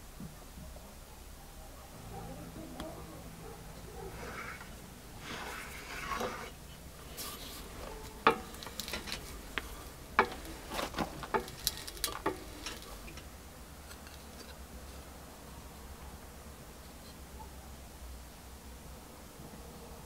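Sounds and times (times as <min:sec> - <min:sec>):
handling rustle: 0:03.4 - 0:15.2
bench vise cranking: 0:04.2 - 0:06.6, 0:07.7 - 0:13.3
sharp irregular clicks and creaks: 0:08.1 - 0:13.3.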